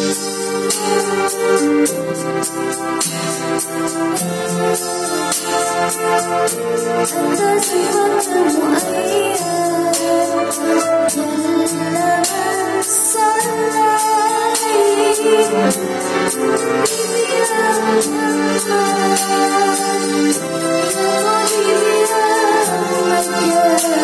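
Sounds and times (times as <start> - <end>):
backing music with steady beat: 0.0 - 24.0
girl singing into microphone: 7.0 - 24.0.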